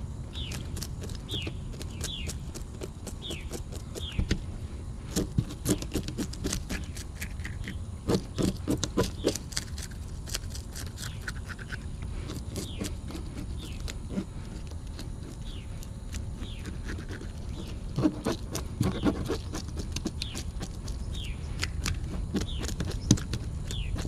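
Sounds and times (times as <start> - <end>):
knife scraping fish scales: 5.1 - 24.0.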